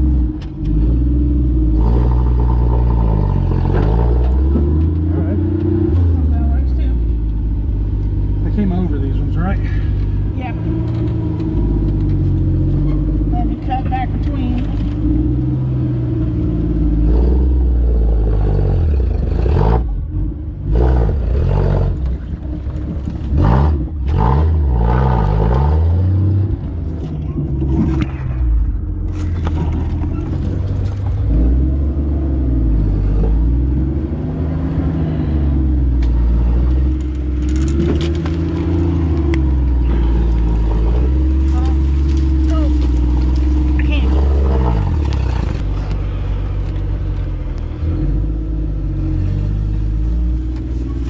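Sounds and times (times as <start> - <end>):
engine revving under load: 0.0 - 51.0.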